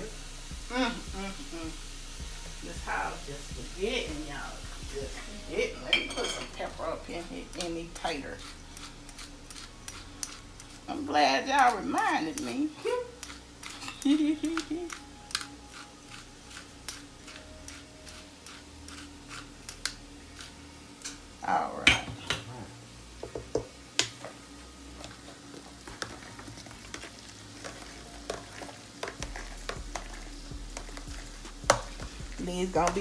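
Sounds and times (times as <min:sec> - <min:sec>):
masher mashing potatoes: 0:07.5 - 0:20.5, 0:25.0 - 0:33.0.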